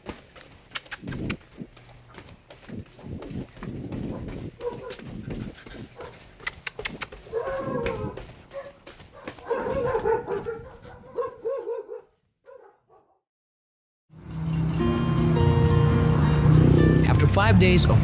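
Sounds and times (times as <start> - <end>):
footsteps on concrete: 0.0 - 11.6
dog barking and whining: 4.0 - 13.2.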